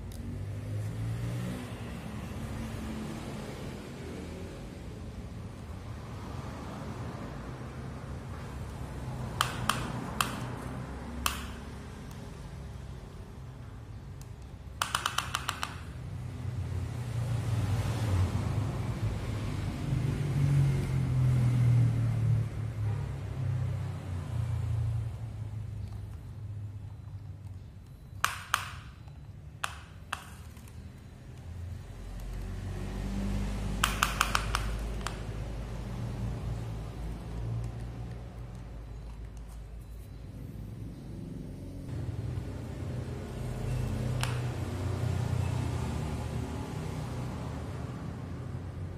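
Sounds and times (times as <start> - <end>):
plastic toy clicking and tapping: 9.4 - 12.2, 14.2 - 16.0, 28.2 - 30.8, 33.8 - 35.3.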